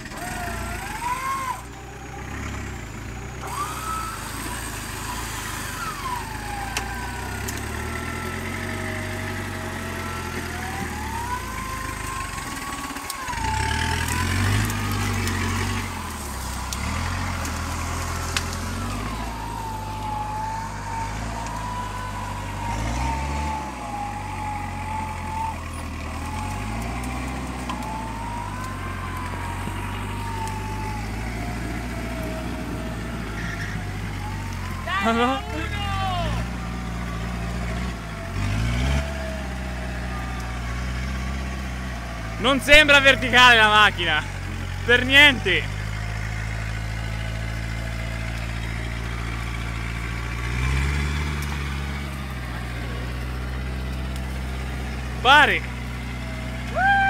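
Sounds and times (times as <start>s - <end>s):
engine revving under load: 0.0s - 57.0s.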